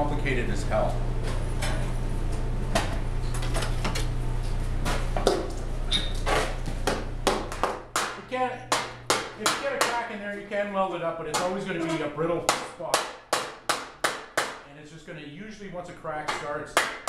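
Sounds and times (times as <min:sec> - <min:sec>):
steady low hum: 0:00.0 - 0:16.8
hammer striking copper sheet: 0:07.3 - 0:10.1, 0:11.3 - 0:14.6.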